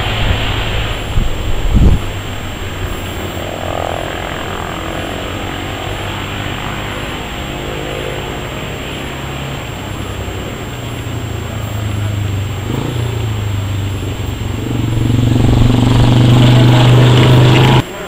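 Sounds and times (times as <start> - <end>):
distant racing motorcycle engine: 0.0 - 18.0.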